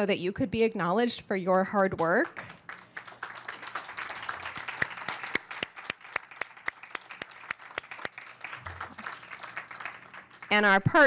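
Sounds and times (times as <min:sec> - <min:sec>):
close sharp handclaps: 0:02.0 - 0:10.7
audience applauding: 0:02.4 - 0:10.8.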